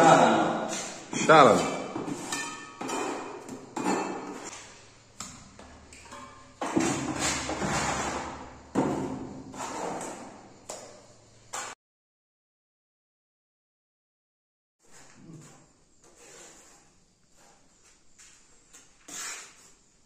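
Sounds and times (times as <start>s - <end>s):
trowel scraping plastic bucket: 6.7s - 10.3s, 14.8s - 18.0s, 18.8s - 19.8s.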